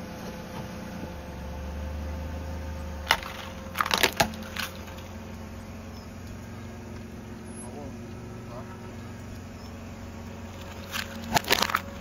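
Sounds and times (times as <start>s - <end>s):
low engine hum: 0.0s - 12.0s
plastic toy cars crushed by tyre: 3.1s - 5.0s, 10.7s - 12.0s.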